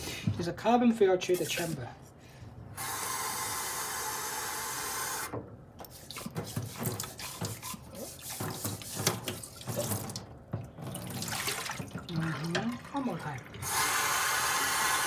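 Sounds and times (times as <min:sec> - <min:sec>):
tap water running into sink: 0:05.8 - 0:15.0.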